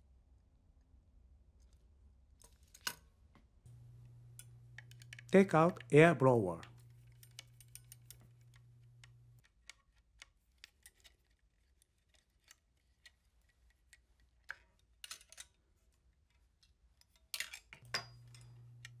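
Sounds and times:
low hum: 3.7 - 9.4.

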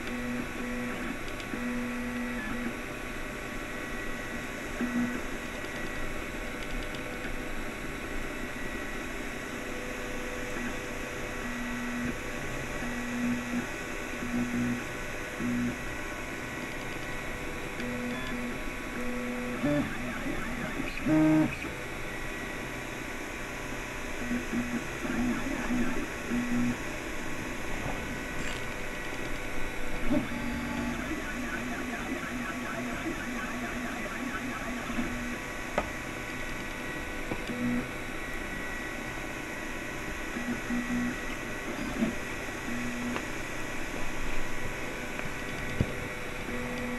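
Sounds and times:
cooling fans humming: 0.0 - 46.9
stepper motors whining: 30.0 - 35.5.

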